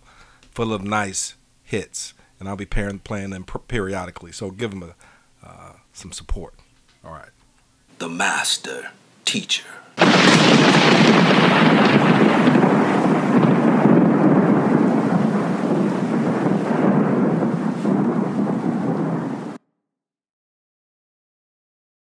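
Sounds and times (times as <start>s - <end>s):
thunder rumbling: 10.0s - 19.6s.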